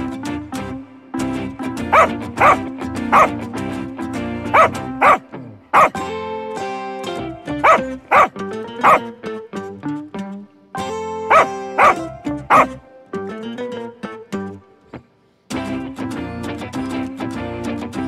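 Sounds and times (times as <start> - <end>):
light background music: 0.0 - 14.8
dog barking: 1.9 - 3.4, 4.5 - 6.0, 7.6 - 9.1, 11.3 - 12.8.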